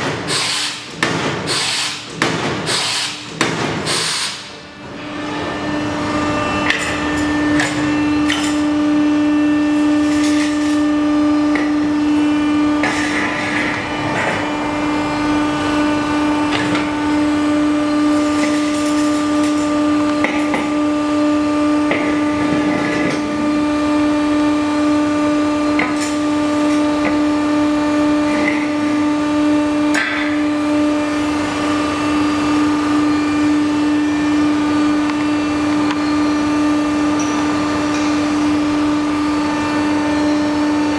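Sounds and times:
hydraulic power unit humming: 0:00.0 - 0:40.9.

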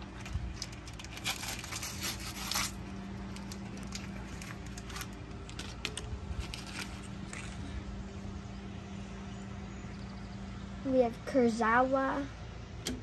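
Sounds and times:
wrapper crinkling and tearing: 0:00.1 - 0:07.7.

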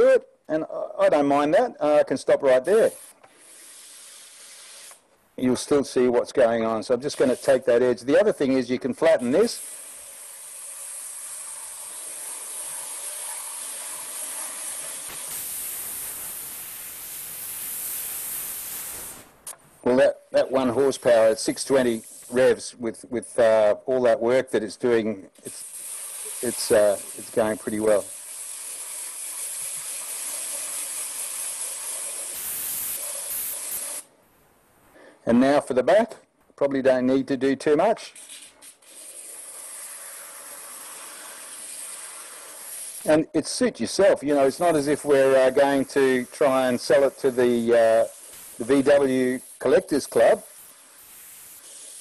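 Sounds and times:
sanding disc hissing on wood: 0:09.3 - 0:19.4, 0:25.5 - 0:34.0, 0:44.6 - 0:52.0.

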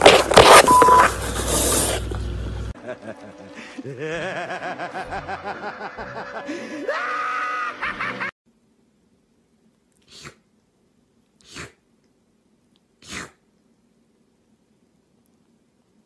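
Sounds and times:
kitten sneezing: 0:10.0 - 0:10.4, 0:11.4 - 0:11.8, 0:13.0 - 0:13.4.

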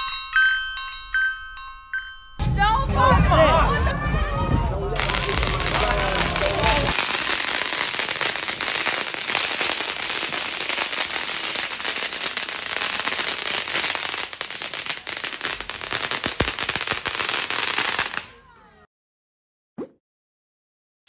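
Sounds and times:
firework bang: 0:03.0 - 0:18.2
fireworks crackling and popping: 0:03.9 - 0:18.4.

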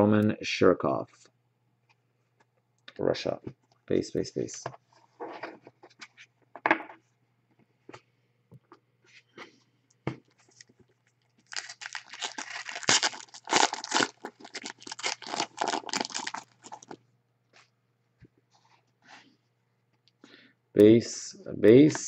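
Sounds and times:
foil wrapper crinkling: 0:11.0 - 0:17.0.

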